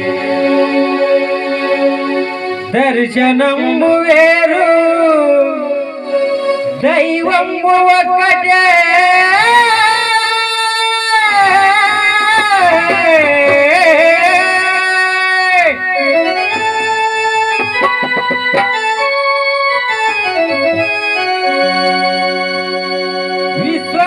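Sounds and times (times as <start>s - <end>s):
person singing: 0.0s - 19.0s
harmonium melody: 0.0s - 24.0s
dholak drum strokes: 9.4s - 21.3s.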